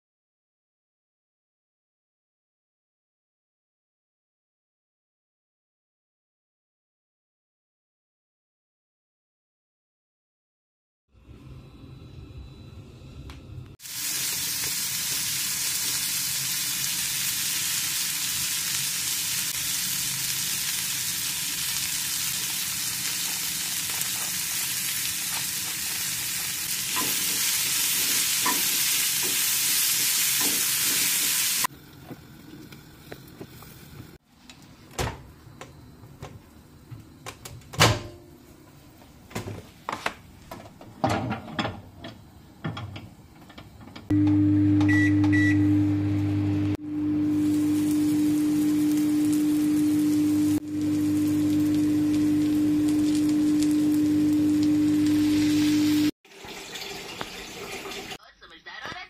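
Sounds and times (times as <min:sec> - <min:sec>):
vegetables sizzling in oil: 0:13.8 - 0:34.2, 0:46.3 - 0:58.2.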